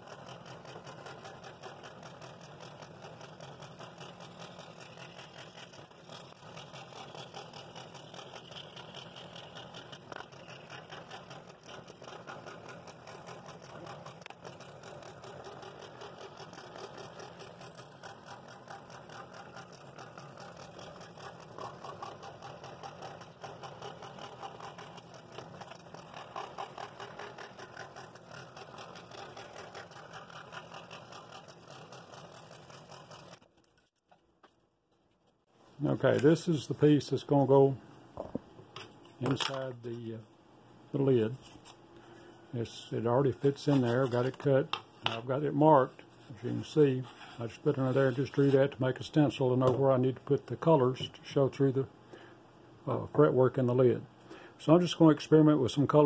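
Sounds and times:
scroll saw cutting wood: 0.0s - 33.9s, 43.3s - 44.6s, 46.3s - 48.8s.

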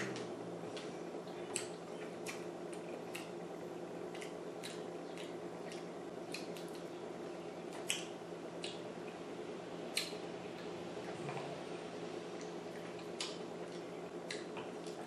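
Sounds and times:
wet chewing sounds: 0.0s - 9.2s, 9.9s - 11.5s, 12.4s - 15.0s
steady low hum: 0.0s - 15.0s.

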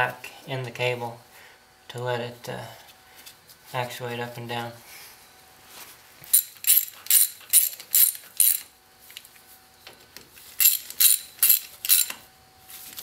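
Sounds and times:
ratchet wrench clicking: 6.3s - 8.7s, 10.6s - 12.2s.

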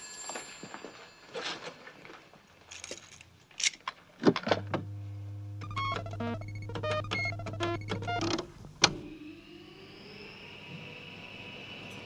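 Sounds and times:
low electric hum: 4.5s - 10.2s.

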